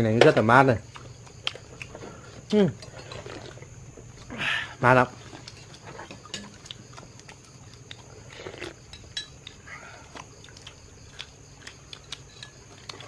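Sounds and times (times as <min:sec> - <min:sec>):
utensils clinking on porcelain: 0:08.9 - 0:09.5.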